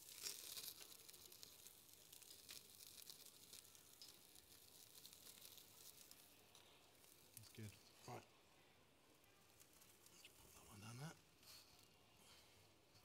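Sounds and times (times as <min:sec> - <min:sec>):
fish skin sizzling and crackling: 0:00.0 - 0:07.8, 0:09.4 - 0:10.5.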